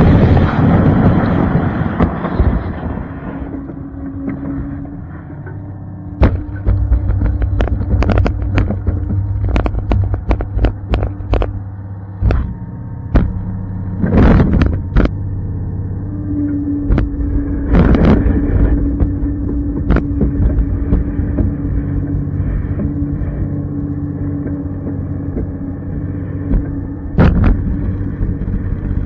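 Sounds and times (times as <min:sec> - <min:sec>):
rushes of noise: 0:00.0 - 0:29.0
snowcat engine running: 0:00.0 - 0:29.0
sharp knocks and clatters: 0:06.2 - 0:11.6, 0:26.4 - 0:29.0.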